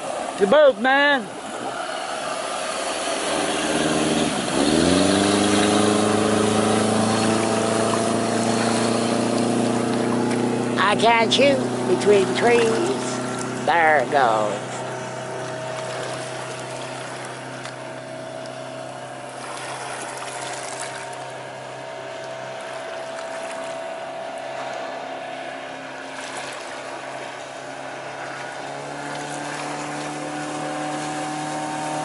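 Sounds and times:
boat engine droning: 0:00.0 - 0:32.0.

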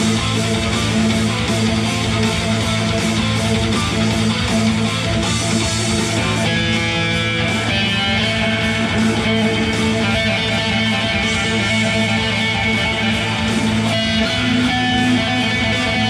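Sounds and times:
electric guitar notes: 0:00.0 - 0:16.0
low drone: 0:05.6 - 0:13.8.

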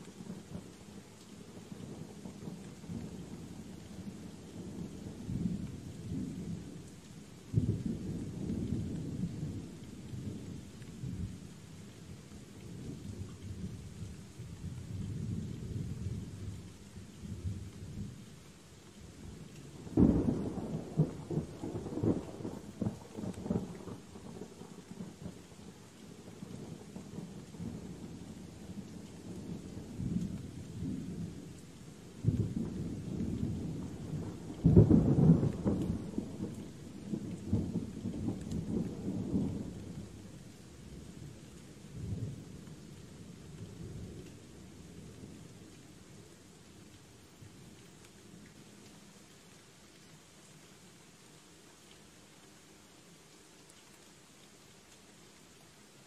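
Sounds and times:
steady rain: 0:00.0 - 0:56.0
thunder rumbling: 0:32.2 - 0:40.1.

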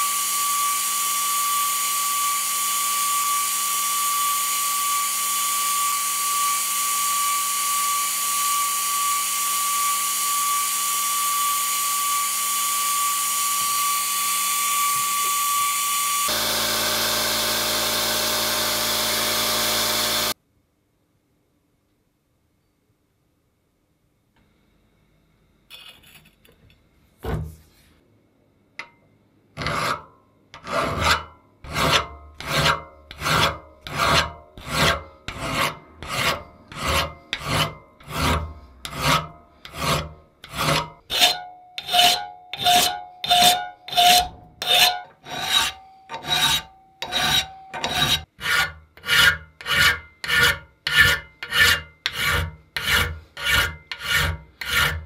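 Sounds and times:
file rasping on steel: 0:29.6 - 0:55.0
faint metallic ring: 0:45.5 - 0:48.3.

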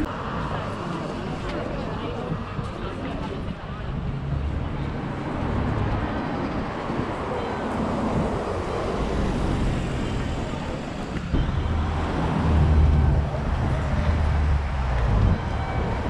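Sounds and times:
street traffic: 0:00.0 - 0:16.0
vehicle engine hum: 0:03.5 - 0:16.0.

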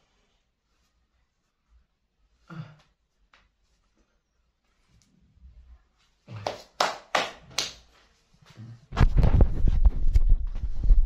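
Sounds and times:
sharp hand slaps: 0:06.3 - 0:07.9.

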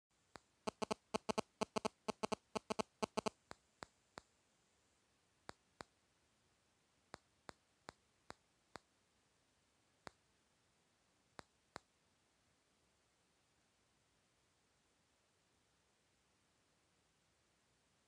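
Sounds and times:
sharp clicks: 0:00.3 - 0:04.3.

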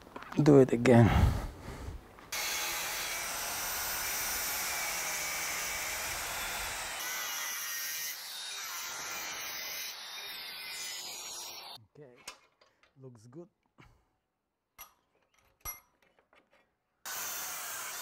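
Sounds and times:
angle grinder cutting steel: 0:02.4 - 0:11.8, 0:17.1 - 0:18.0.

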